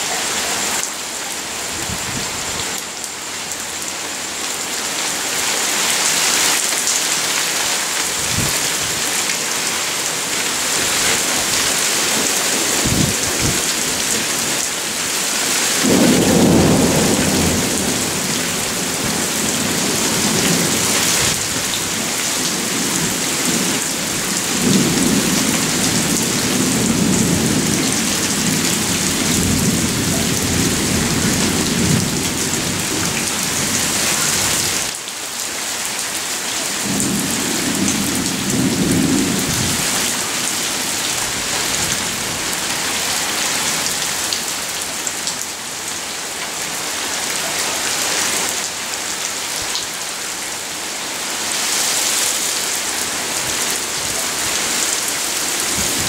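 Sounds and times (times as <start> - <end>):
heavy rain pouring: 0.0 - 56.0
thunder rumbling: 15.8 - 34.7, 36.8 - 42.4.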